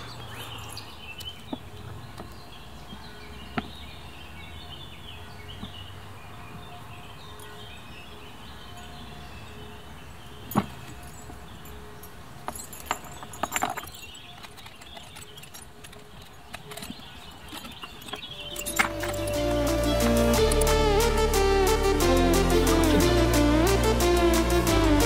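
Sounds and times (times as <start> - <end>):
chain clinking on rubber plates: 10.4 - 19.2.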